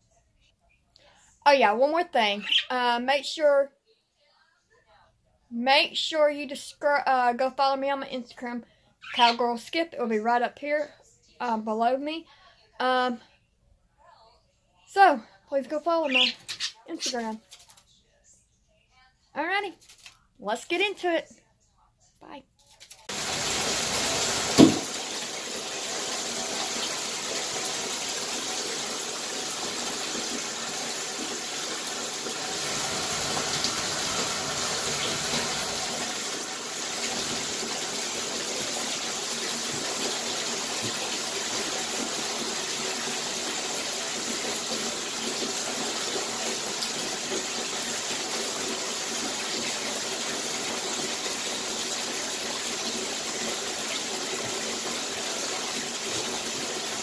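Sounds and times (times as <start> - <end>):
shower water running: 23.0 - 57.0.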